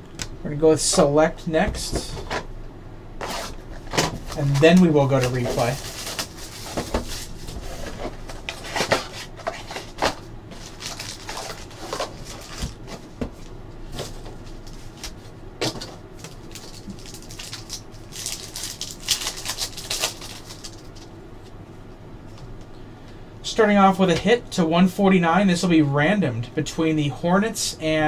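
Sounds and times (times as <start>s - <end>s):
foil pack crinkling: 4.3s - 13.2s, 15.8s - 21.1s.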